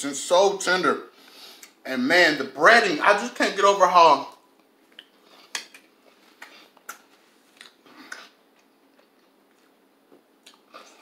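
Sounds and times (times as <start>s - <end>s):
person chewing crunchy food: 4.9s - 11.0s.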